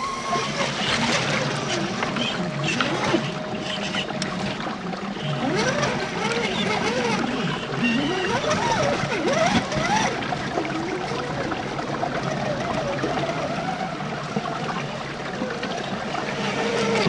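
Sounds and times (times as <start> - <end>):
electric motor and gears whining: 0.0 - 14.8, 15.5 - 17.0
creek water trickling: 0.0 - 17.0.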